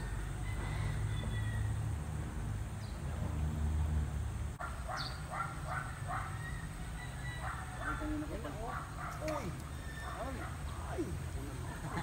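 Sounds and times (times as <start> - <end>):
harsh animal calls: 4.8 - 12.0
bird chirp: 4.9 - 8.2.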